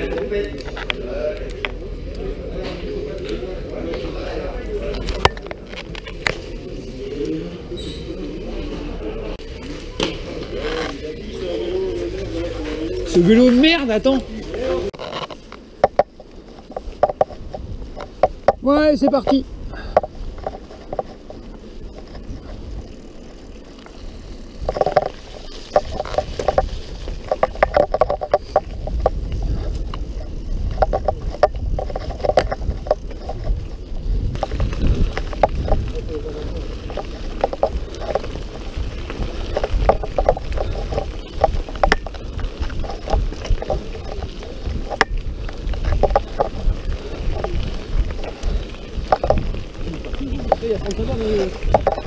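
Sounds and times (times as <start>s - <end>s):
bike clicking and rattling: 0.0s - 52.0s
bike tyre noise: 0.0s - 52.0s
wind on microphone: 14.9s - 52.0s.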